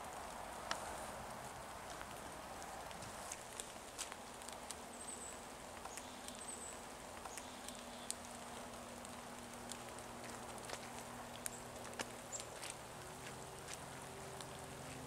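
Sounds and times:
footsteps through dry grass: 0:09.2 - 0:15.0.

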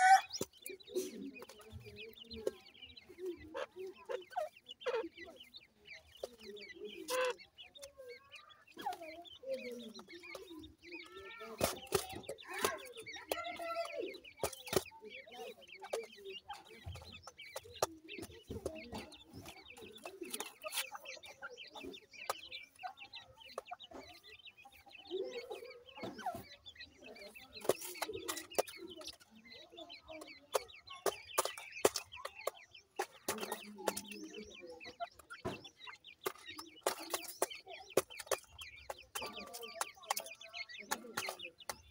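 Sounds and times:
chicks chirping and peeping: 0:00.0 - 0:41.9.

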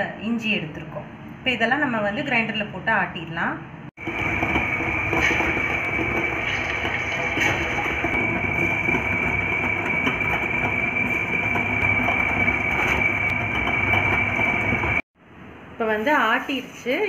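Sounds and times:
electric wet grinder running: 0:04.0 - 0:15.0
high whine: 0:04.0 - 0:15.1.

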